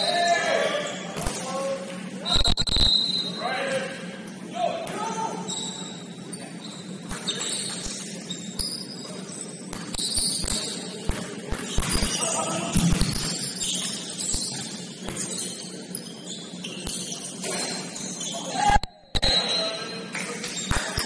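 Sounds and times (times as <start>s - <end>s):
shoes squeaking on hardwood court: 5.4s - 18.5s, 19.2s - 21.0s
basketball bouncing: 9.7s - 13.7s.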